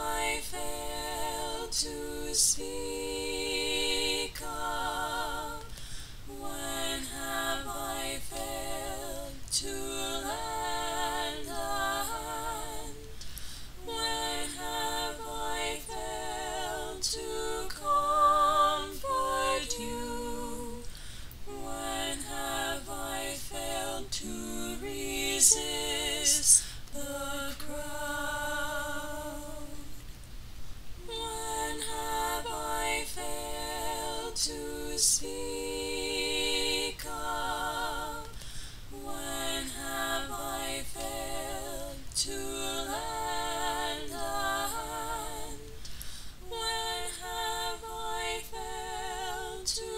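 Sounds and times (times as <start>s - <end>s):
woman singing unaccompanied: 21.5s - 30.0s.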